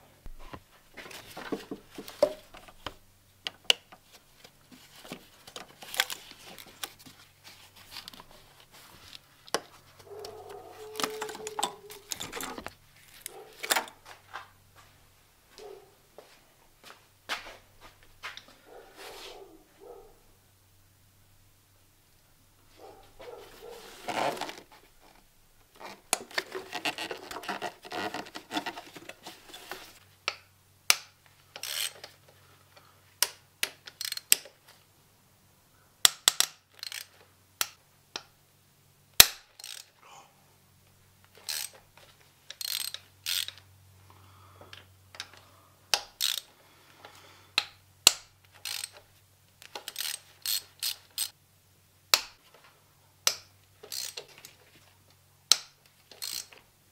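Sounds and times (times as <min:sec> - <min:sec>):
metal tools clinking: 0:10.2 - 0:14.0
socket ratchet clicking: 0:30.9 - 0:32.2, 0:33.2 - 0:34.5, 0:36.0 - 0:37.8, 0:39.2 - 0:39.9, 0:41.4 - 0:41.8, 0:42.5 - 0:43.7, 0:45.9 - 0:46.5, 0:47.6 - 0:49.0, 0:49.6 - 0:51.4, 0:53.3 - 0:54.6, 0:55.5 - 0:56.6.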